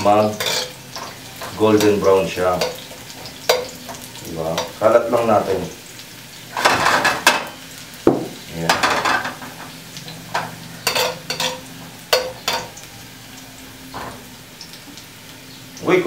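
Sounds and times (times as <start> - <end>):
oil frying hiss: 0.0 - 16.0
metal ladle scraping a wok: 0.3 - 1.2, 10.4 - 12.6.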